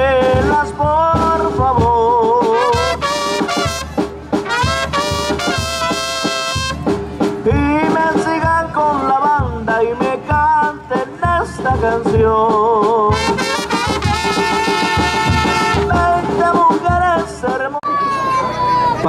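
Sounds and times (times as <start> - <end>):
trumpets and trombones melody: 0.0 - 8.3, 13.0 - 17.3.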